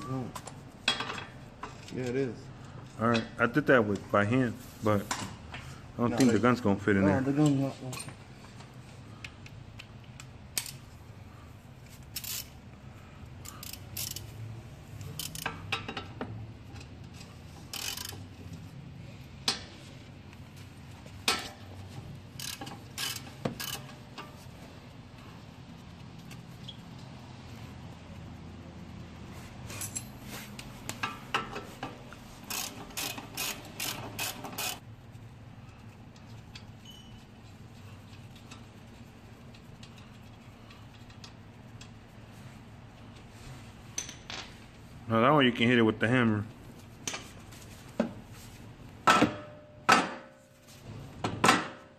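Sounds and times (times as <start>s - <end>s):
ratchet wrench clicking: 9.8s - 10.9s, 12.1s - 12.6s, 13.4s - 14.4s, 15.0s - 16.0s, 16.7s - 18.3s, 22.4s - 24.2s, 32.4s - 34.8s.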